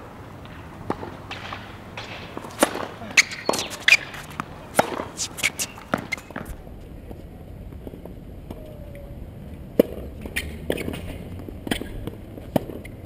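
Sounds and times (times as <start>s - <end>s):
tennis racket striking ball: 0.4s - 6.6s, 9.8s - 13.0s.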